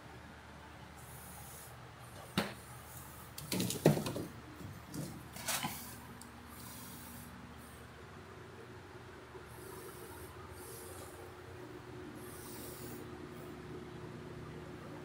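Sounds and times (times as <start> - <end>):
handling knocks and rubs: 3.4 - 6.0.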